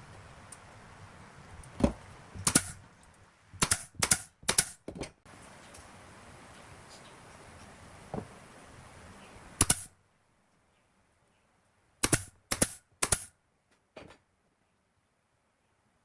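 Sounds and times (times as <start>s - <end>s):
nail gun firing: 2.4s - 2.8s, 3.6s - 4.8s, 9.6s - 9.9s, 12.0s - 13.3s.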